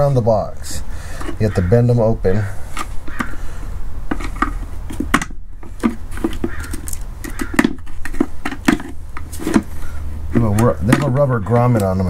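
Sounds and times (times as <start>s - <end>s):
screwdriver prying metal tabs: 6.5s - 7.7s.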